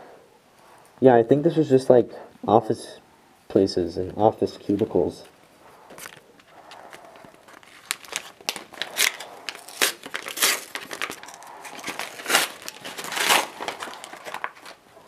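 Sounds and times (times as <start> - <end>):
paper envelope rustling and tearing: 6.0 - 14.9.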